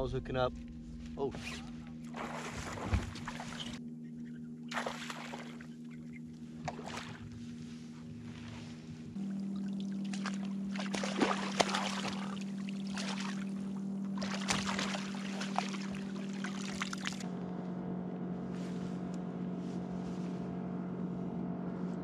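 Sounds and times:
steady low hum: 0.0s - 22.0s
fish splashing in water: 2.1s - 3.8s, 4.7s - 5.7s, 9.4s - 17.2s.

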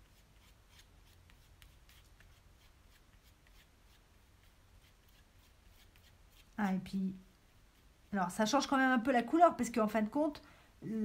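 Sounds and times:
palette knife scraping paint: 0.0s - 6.6s.

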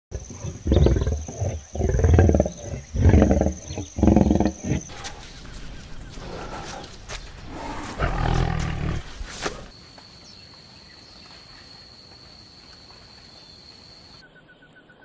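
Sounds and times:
tiger roaring: 0.1s - 9.7s.

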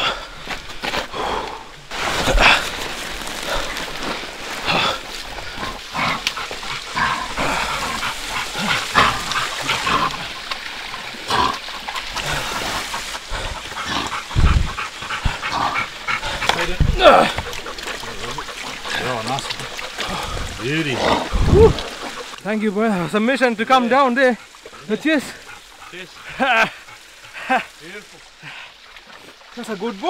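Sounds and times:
scuffling over mud: 1.9s - 14.1s
dog noises: 13.0s - 20.0s.

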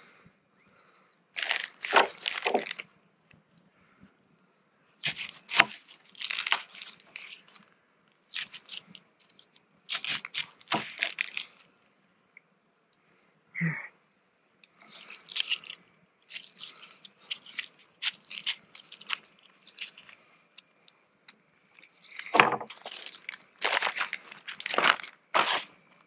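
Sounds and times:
high insect drone: 0.0s - 26.0s
plastic bag crinkling: 1.4s - 2.8s, 9.9s - 11.7s, 14.9s - 20.2s, 21.7s - 25.7s.

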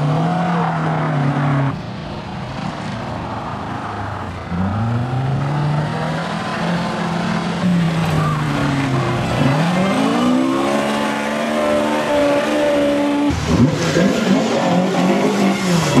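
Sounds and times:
rally car engine revving: 4.4s - 16.0s.

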